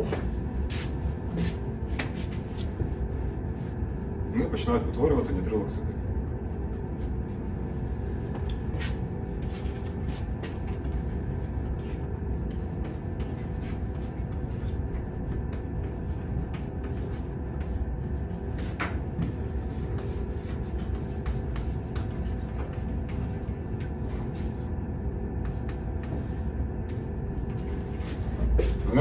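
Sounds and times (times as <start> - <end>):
steady low rumble: 0.0 - 29.0
chalk tapping on blackboard: 20.0 - 22.2.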